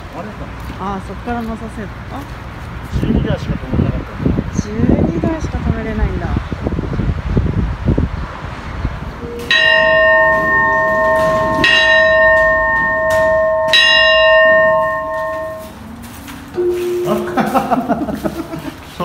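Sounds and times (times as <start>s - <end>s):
bell ringing: 9.2s - 18.0s.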